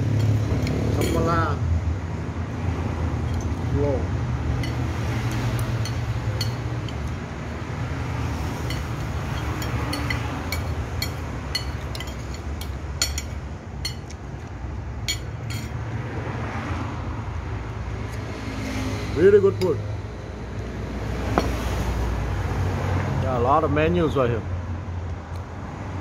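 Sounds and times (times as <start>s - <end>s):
low rumble of road traffic: 0.0s - 26.0s
cutlery clinking on a plate: 4.6s - 7.1s, 8.6s - 14.2s, 15.1s - 15.7s.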